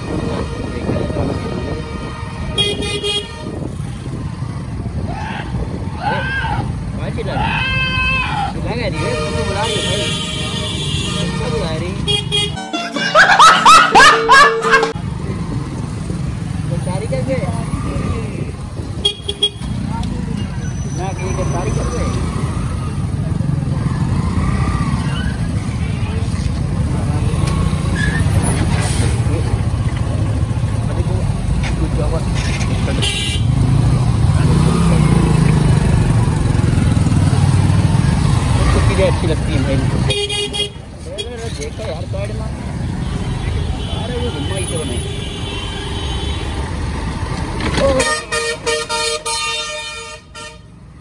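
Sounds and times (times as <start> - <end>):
motorcycle engine rumbling: 0.0 - 45.4
vehicle horn honking: 0.1 - 3.7, 9.0 - 13.4, 33.0 - 33.5, 47.8 - 50.8.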